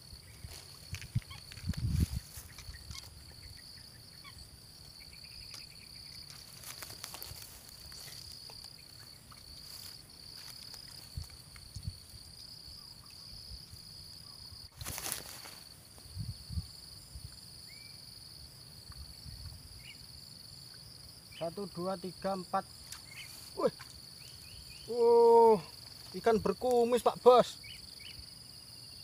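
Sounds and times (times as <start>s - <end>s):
insects chirring: 0.0s - 29.0s
rustles and knocks in grass: 0.3s - 3.3s, 5.4s - 12.2s, 14.7s - 16.2s, 22.8s - 24.1s.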